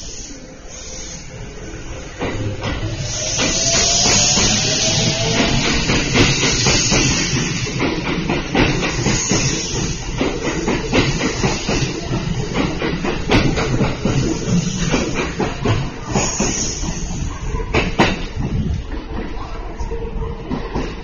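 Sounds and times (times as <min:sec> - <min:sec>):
electric train rumbling past: 0:00.0 - 0:21.0
wheels clacking over rail joints: 0:05.2 - 0:16.8.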